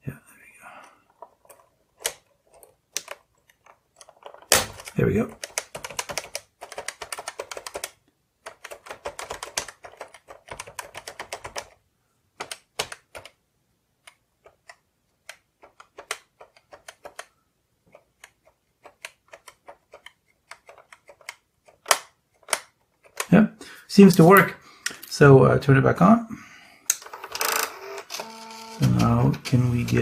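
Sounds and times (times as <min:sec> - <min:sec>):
typewriter keys clicking: 0:04.4 - 0:07.9, 0:08.5 - 0:11.7.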